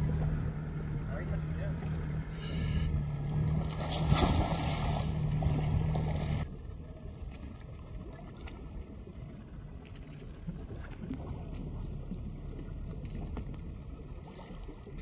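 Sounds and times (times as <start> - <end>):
boat motor idling: 0.0 - 4.1, 4.9 - 15.0
faint water and wind: 0.0 - 15.0
splash into water: 3.4 - 6.4.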